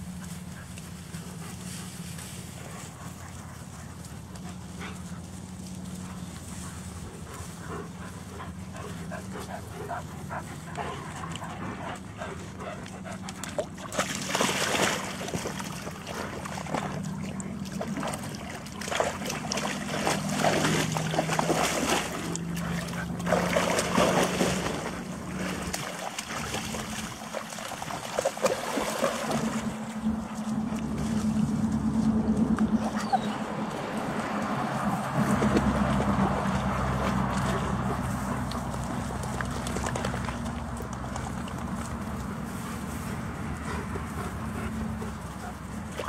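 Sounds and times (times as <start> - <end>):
dog splashing through water: 13.1 - 46.0.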